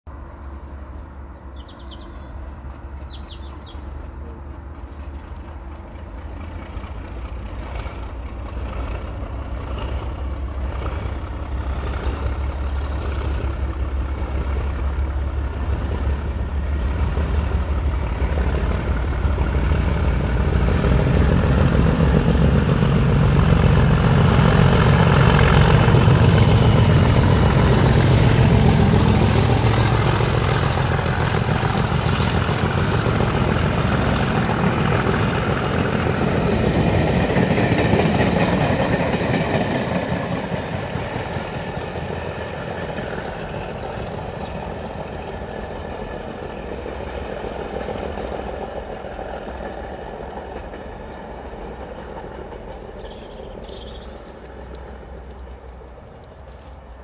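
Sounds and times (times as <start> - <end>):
diesel locomotives working hard: 0.1 - 57.0
bird chirps: 1.5 - 3.9, 12.5 - 13.1, 44.2 - 45.2, 52.9 - 54.4.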